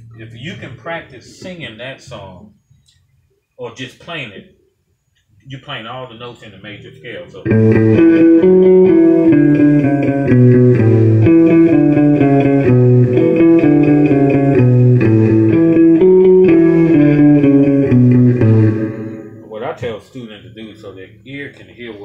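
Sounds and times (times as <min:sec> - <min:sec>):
clean electric guitar melody: 0:07.4 - 0:19.5.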